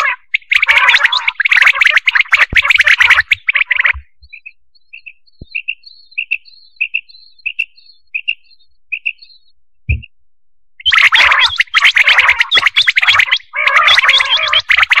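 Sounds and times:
quail calling: 0.0s - 9.5s, 10.8s - 15.0s
faint low knock: 9.9s - 10.1s.

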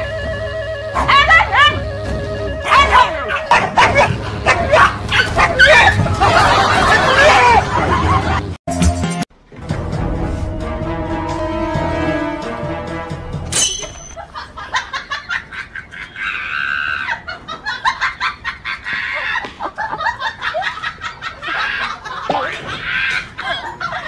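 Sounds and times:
music: 0.0s - 14.1s
chicken squawking: 2.6s - 7.1s.

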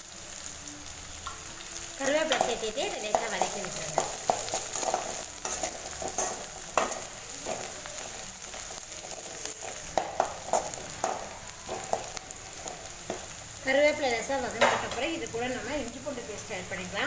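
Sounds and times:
onions sizzling in hot oil: 0.0s - 17.0s
metal spoon scraping pan: 2.2s - 13.3s.

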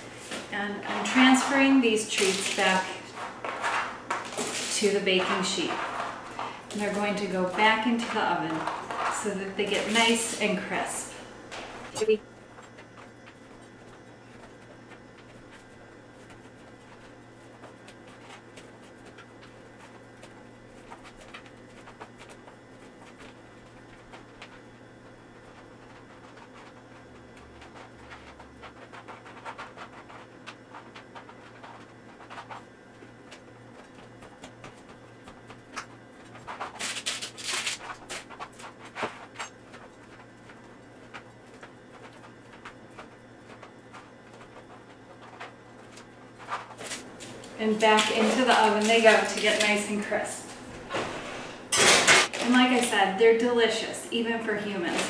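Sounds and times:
faint steady hum: 0.0s - 55.0s
taps and scrapes: 0.3s - 12.0s.

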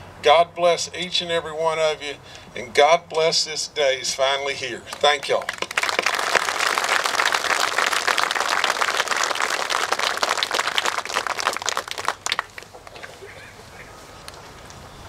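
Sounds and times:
crowd applauding: 4.9s - 13.4s.

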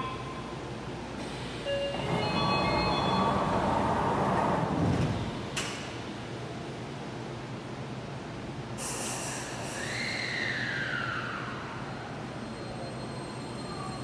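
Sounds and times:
train doors sliding shut: 1.2s - 6.0s.

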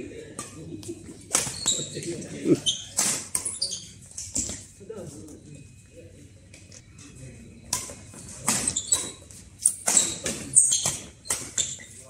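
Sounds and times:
rackets striking shuttlecock: 0.4s - 1.9s, 2.8s - 3.6s, 7.7s - 11.8s
shoes squeaking on court: 1.2s - 4.7s, 8.1s - 12.0s.

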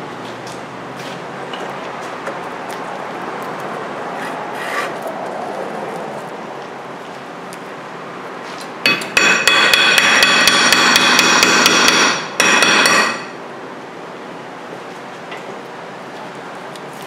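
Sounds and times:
hammer blows on metal rotor: 8.8s - 13.4s.

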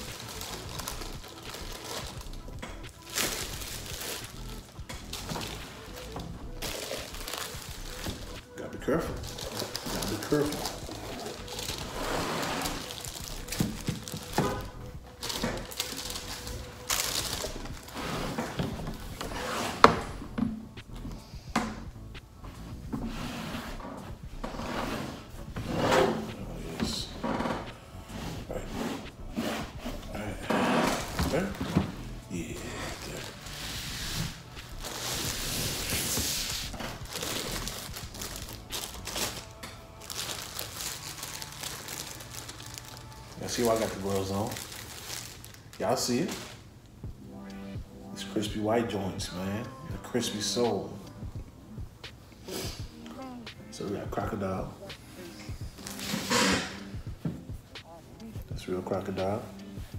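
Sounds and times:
plastic and tissue paper crinkling: 0.0s - 20.1s, 29.6s - 46.7s, 55.2s - 56.8s.

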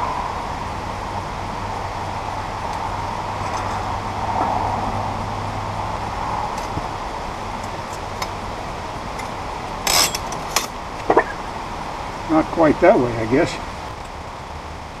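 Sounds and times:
metal clatter: 9.2s - 11.4s.

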